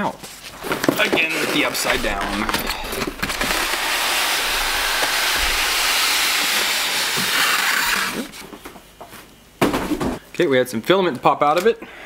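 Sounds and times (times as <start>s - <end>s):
cardboard scraping on foam: 0.4s - 8.6s.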